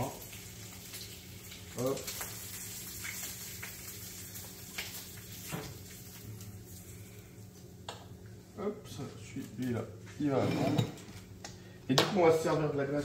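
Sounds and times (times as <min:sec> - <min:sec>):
bacon sizzling in a frying pan: 0:00.0 - 0:08.2.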